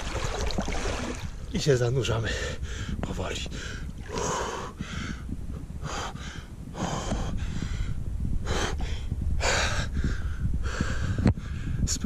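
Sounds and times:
man gasping and breathing hard: 0:02.5 - 0:11.8.

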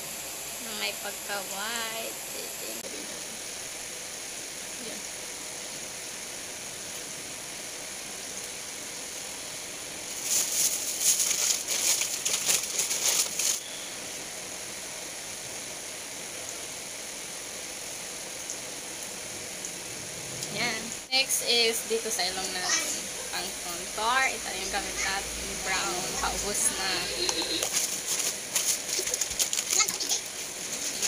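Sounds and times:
steady hiss: 0:00.0 - 0:31.0
rapid scratchy rustling: 0:10.1 - 0:13.7, 0:27.3 - 0:31.0.

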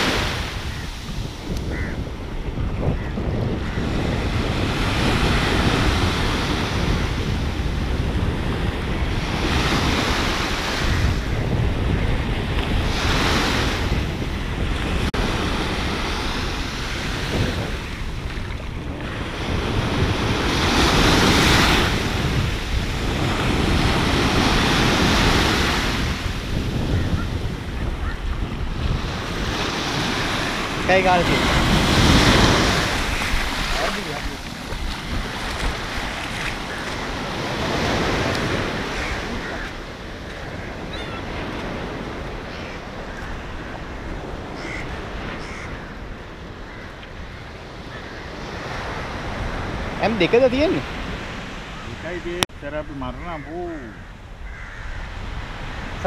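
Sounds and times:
wind buffeting microphone: 0:00.0 - 0:52.9
small waves breaking: 0:28.8 - 0:46.6.

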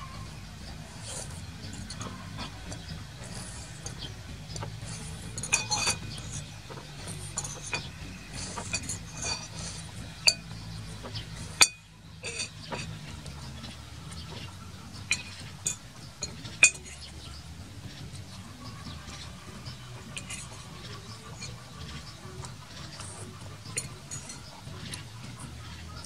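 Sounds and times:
metal spoon clinking on ceramic bowl: 0:04.9 - 0:10.5.

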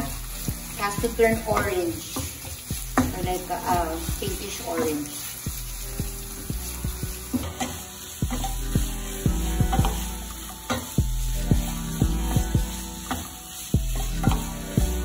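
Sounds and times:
food sizzling in hot oil: 0:00.0 - 0:15.0
wooden spatula knocking on pan: 0:01.5 - 0:03.2, 0:09.6 - 0:10.1.

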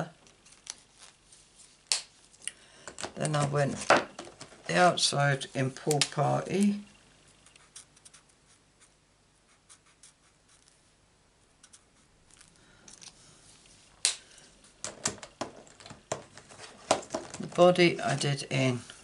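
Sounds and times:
marker nib scratching on card: 0:07.4 - 0:10.8, 0:11.6 - 0:12.1.

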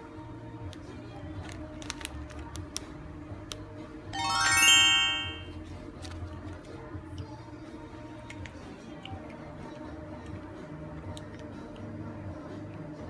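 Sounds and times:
rising chime notes: 0:04.2 - 0:05.5.

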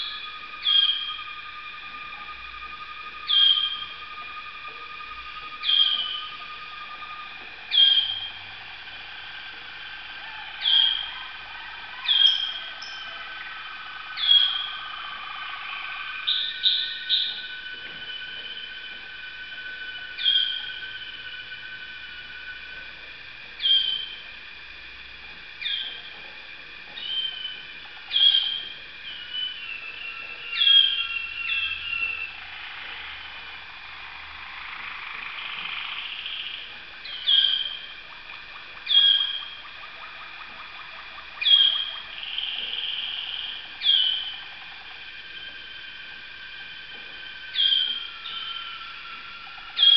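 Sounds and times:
canaries singing: 0:00.0 - 0:24.4, 0:25.5 - 0:49.9.

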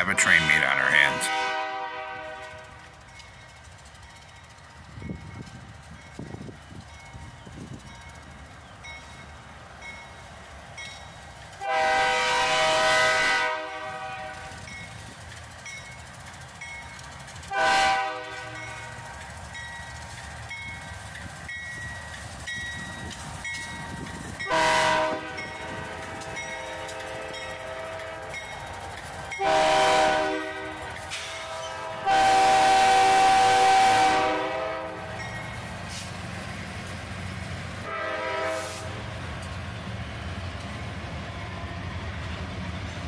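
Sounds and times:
passing train rumbling: 0:00.0 - 0:43.0
locomotive air horn blasts: 0:01.1 - 0:02.8, 0:11.6 - 0:14.6, 0:17.5 - 0:18.8, 0:24.5 - 0:28.4, 0:29.4 - 0:35.1, 0:37.8 - 0:39.0.

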